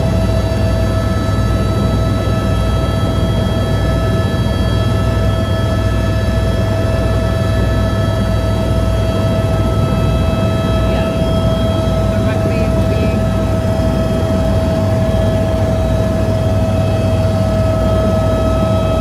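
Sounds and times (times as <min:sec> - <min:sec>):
helicopter rotor and engine drone: 0:00.0 - 0:19.0
high whine: 0:06.6 - 0:19.0.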